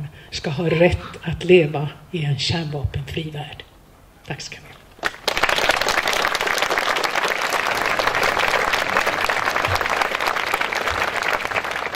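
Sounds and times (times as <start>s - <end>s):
audience applauding: 5.0s - 11.9s.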